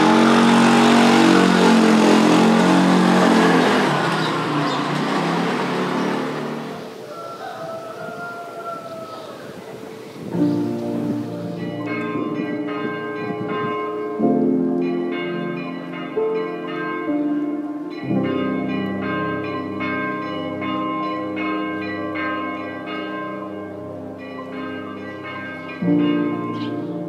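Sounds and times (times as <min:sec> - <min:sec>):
bell-like notes over chords: 0:10.2 - 0:27.0.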